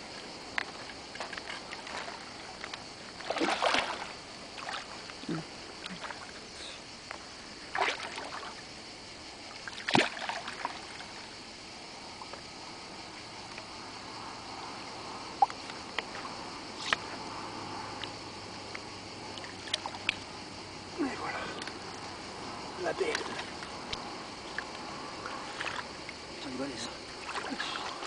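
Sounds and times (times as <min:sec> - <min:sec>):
fish splashing in water: 0:00.7 - 0:05.2, 0:07.7 - 0:08.6, 0:09.6 - 0:11.2, 0:27.1 - 0:28.0.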